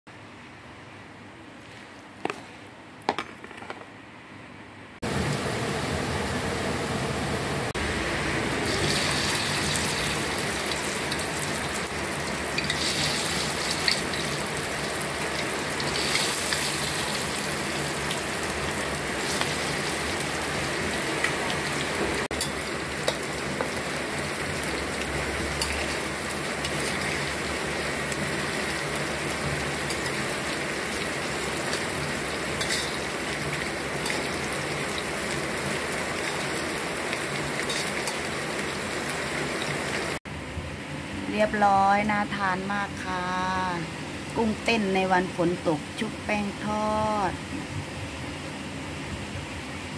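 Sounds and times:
shrimp deep-frying in hot oil: 7.8s - 40.2s
oil popping and crackling: 8.6s - 40.2s.

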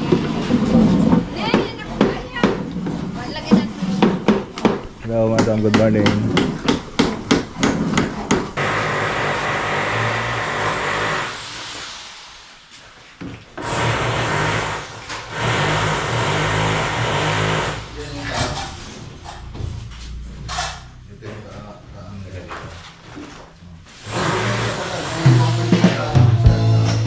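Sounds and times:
power tool running: 8.6s - 11.4s, 13.6s - 17.9s, 24.0s - 26.1s.

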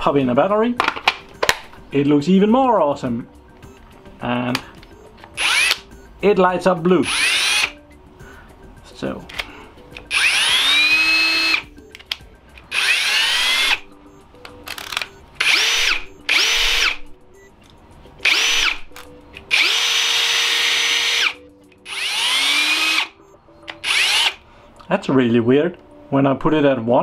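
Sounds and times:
power drill spinning: 5.4s - 5.8s, 7.0s - 7.7s, 10.0s - 11.7s, 12.7s - 13.8s, 14.7s - 17.0s, 18.2s - 18.9s, 19.5s - 23.1s, 23.8s - 24.4s.

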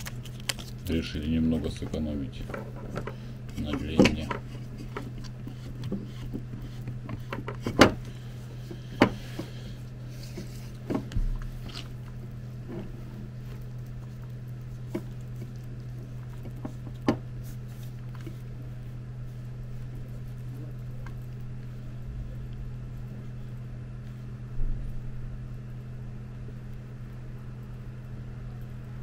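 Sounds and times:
steady low hum: 0.0s - 29.0s
cable handling clicks and taps: 1.8s - 8.1s.

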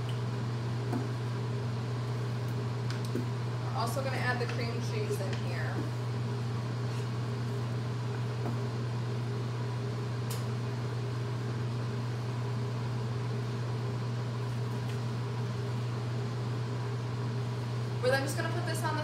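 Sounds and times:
exhaust fan humming: 0.0s - 19.0s.

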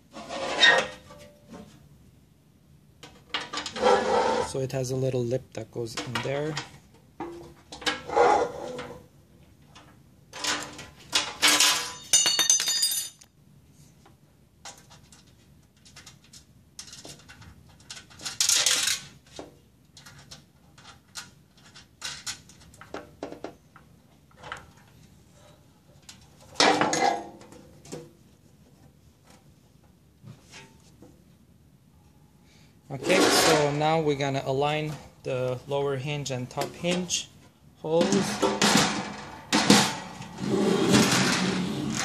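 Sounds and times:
sheet metal clanking and rattling: 38.0s - 42.0s.

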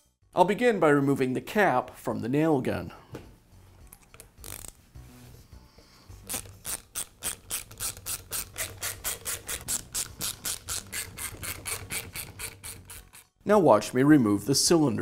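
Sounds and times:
socket ratchet clicking: 6.3s - 13.2s.

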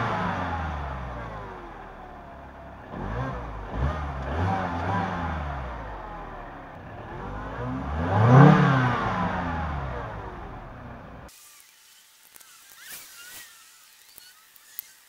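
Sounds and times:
car engine revving: 0.0s - 11.3s.

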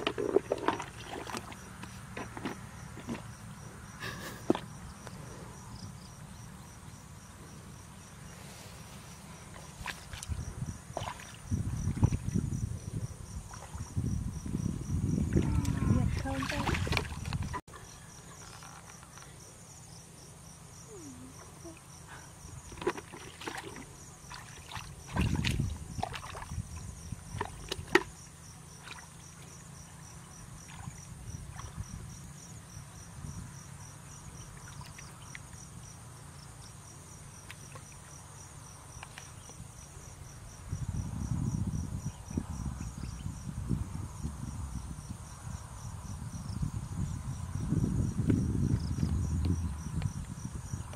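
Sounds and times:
muddy water sloshing and splashing: 0.0s - 3.6s, 8.8s - 12.5s, 13.4s - 14.0s, 15.1s - 19.0s, 22.5s - 32.0s, 34.4s - 35.6s
insects chirping: 0.0s - 50.9s.

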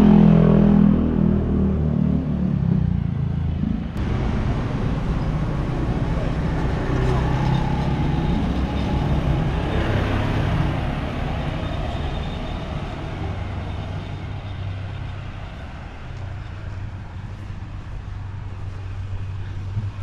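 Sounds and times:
low engine hum: 0.0s - 20.0s
motor scooter passing by: 4.0s - 15.1s.

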